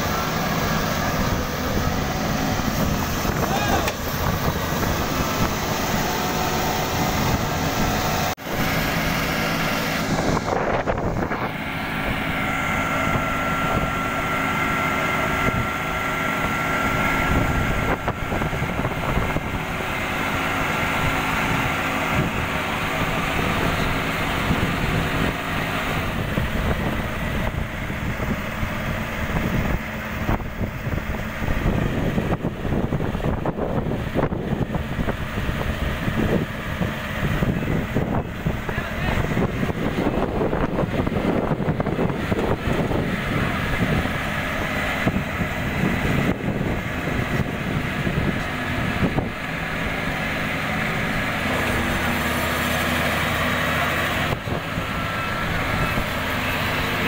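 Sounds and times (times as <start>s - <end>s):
diesel engine running under load: 0.0s - 57.0s
high steady whine: 0.0s - 57.0s.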